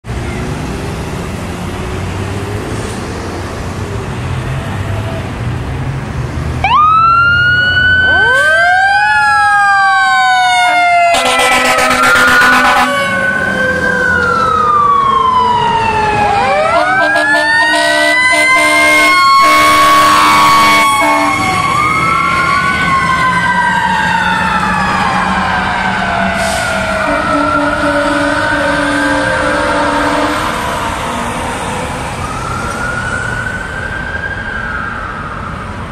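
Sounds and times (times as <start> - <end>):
diesel engines rumbling: 0.0 - 35.9
sirens wailing: 0.1 - 35.9
air horn blasts: 11.1 - 13.2, 16.6 - 21.4, 26.4 - 30.6.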